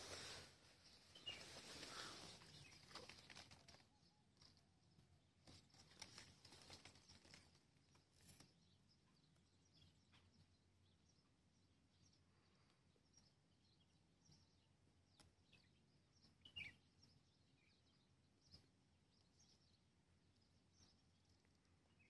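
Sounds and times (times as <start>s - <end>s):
faint handling rustles: 0.0s - 4.6s, 5.4s - 8.5s.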